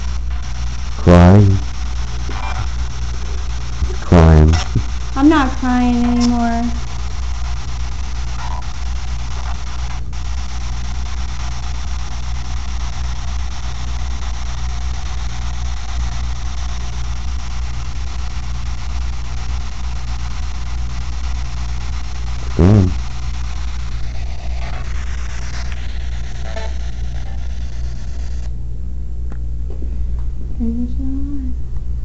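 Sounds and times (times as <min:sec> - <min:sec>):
even hiss: 0:00.0 - 0:28.5
steady low hum: 0:00.0 - 0:32.0
loud pitched sound dropping in pitch: 0:01.0 - 0:01.6, 0:02.3 - 0:05.0, 0:22.4 - 0:23.0.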